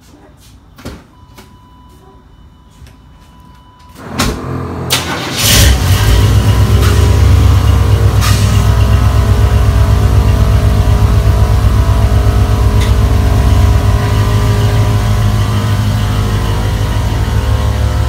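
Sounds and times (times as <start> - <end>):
pickup engine idling: 5.1 - 18.0.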